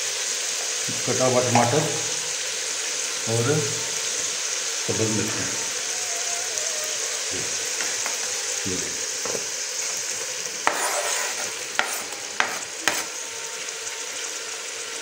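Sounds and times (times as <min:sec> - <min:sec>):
onions sizzling in hot oil: 0:00.0 - 0:15.0
spatula scraping cutting board: 0:10.6 - 0:13.2.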